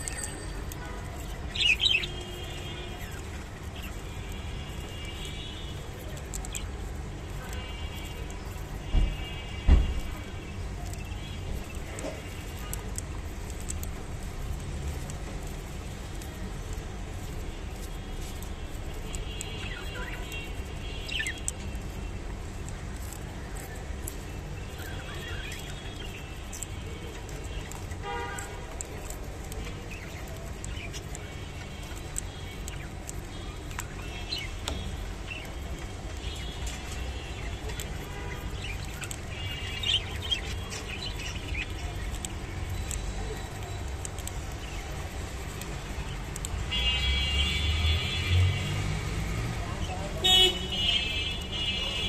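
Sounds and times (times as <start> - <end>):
budgerigars chirping and warbling: 1.1 - 2.3, 19.4 - 21.9, 36.4 - 45.1
budgerigars chirping: 21.0 - 21.6.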